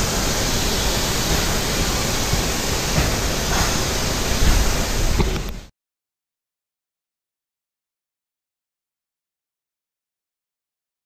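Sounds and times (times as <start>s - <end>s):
spray gun hissing: 0.0s - 5.7s
ventilation airflow: 0.0s - 5.7s.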